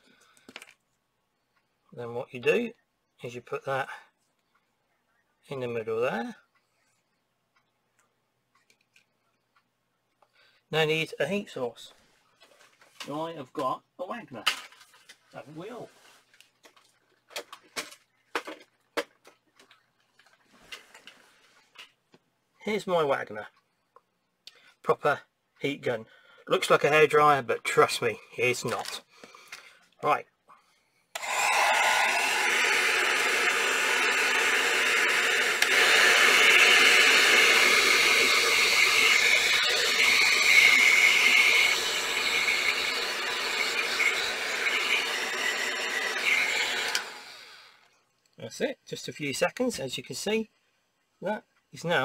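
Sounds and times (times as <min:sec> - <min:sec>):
heat gun blowing hot air: 0:31.2 - 0:47.8.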